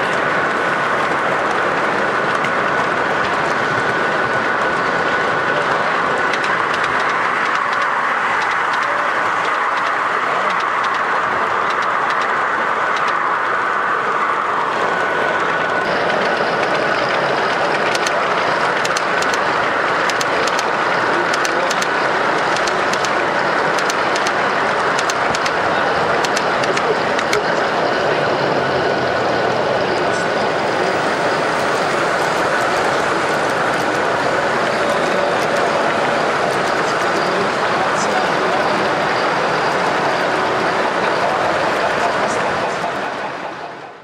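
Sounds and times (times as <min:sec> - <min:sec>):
wheels clicking over rail joints: 0:00.0 - 0:13.3, 0:15.5 - 0:27.5
model train wheels rumbling: 0:00.0 - 0:44.0.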